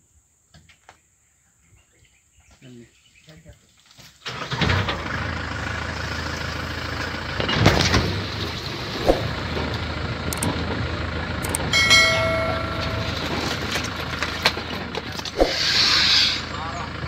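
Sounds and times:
engine running at low revs: 5.0 - 17.0
steady pitched tone: 11.4 - 13.9.

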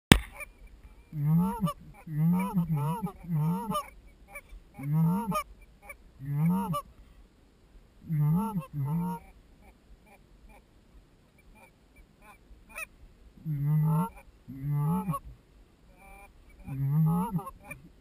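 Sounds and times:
goose call honks: 1.1 - 6.9, 8.0 - 10.6, 11.5 - 18.0.

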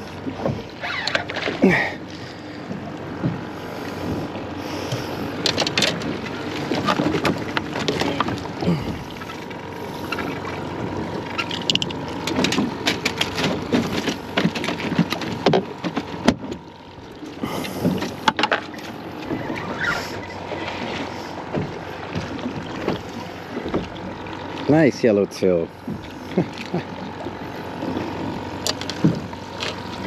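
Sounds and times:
wind and water hiss: 0.0 - 6.8.

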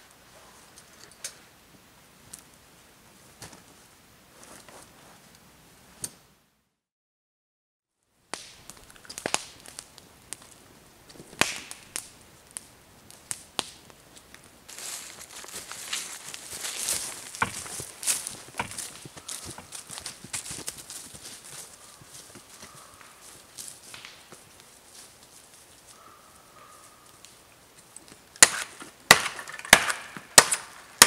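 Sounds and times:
twigs crunching and snapping: 8.3 - 30.8
footsteps on forest floor: 14.7 - 26.9.

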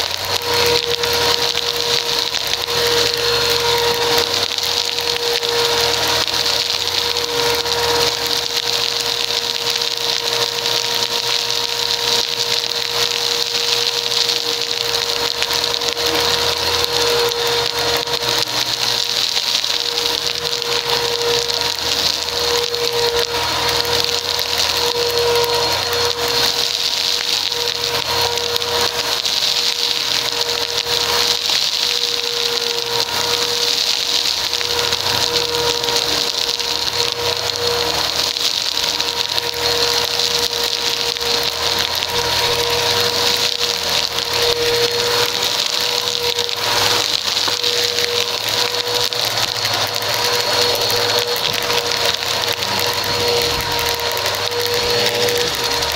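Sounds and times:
crunchy crackle of debris sucked up: 0.0 - 55.9
vacuum cleaner running on carpet: 0.0 - 55.9.

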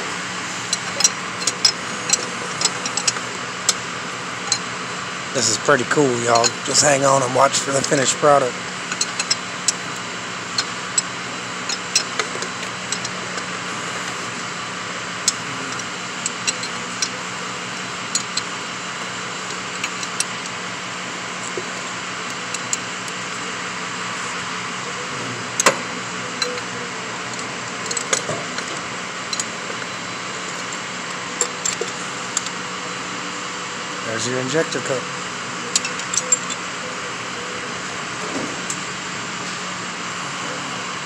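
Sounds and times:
steady whirring hum: 0.0 - 41.0
wrench clinking on a nut: 0.7 - 3.8, 6.3 - 6.9, 8.9 - 13.5, 15.2 - 20.6, 25.6 - 30.8, 31.4 - 32.6, 35.6 - 36.6.

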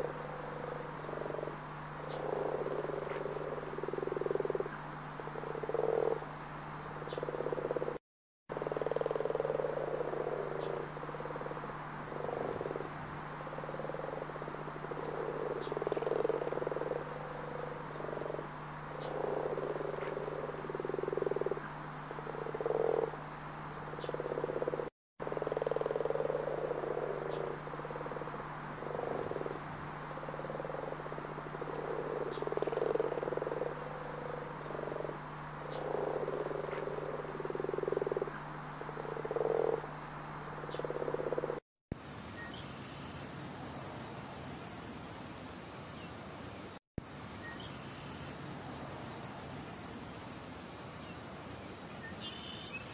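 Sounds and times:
frogs croaking: 0.0 - 41.6
steady low hum: 0.0 - 44.2.

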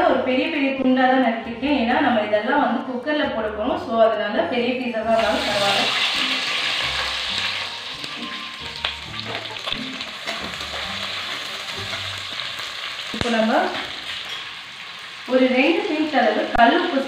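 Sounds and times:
onions sizzling in hot oil: 5.1 - 17.0.

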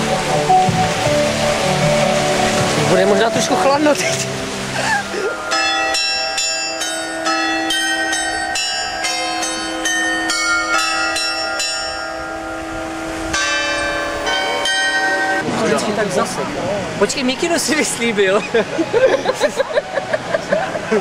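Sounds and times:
small metal bells chiming: 5.4 - 12.7.

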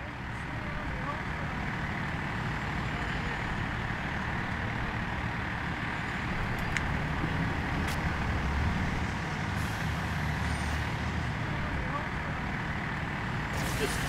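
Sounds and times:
diesel air compressor running: 13.4 - 14.0.

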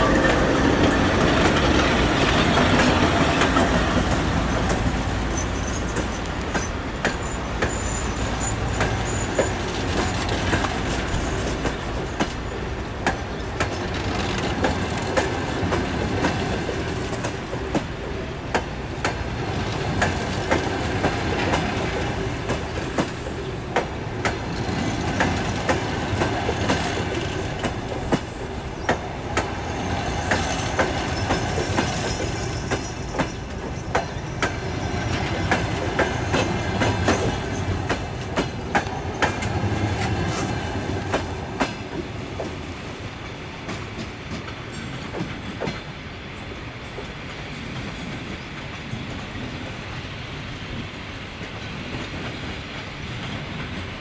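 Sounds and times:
train wheels clicking over rail joints: 0.0 - 54.0
high wheel squeal: 4.4 - 10.4.

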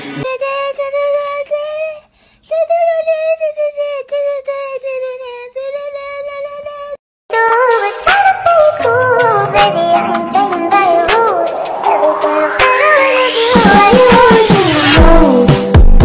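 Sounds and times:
high-pitched voice singing long notes: 8.0 - 15.2.

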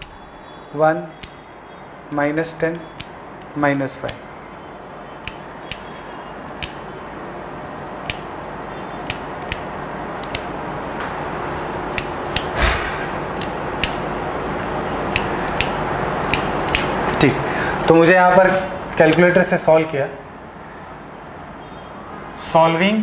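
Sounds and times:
calculator keys clicking: 6.5 - 6.8, 15.1 - 16.9
steady hiss: 12.3 - 14.2.

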